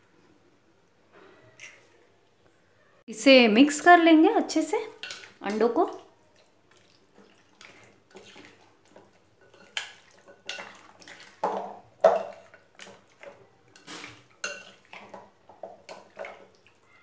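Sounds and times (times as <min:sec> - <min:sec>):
spoon squelching through marinade: 0:04.9 - 0:17.0.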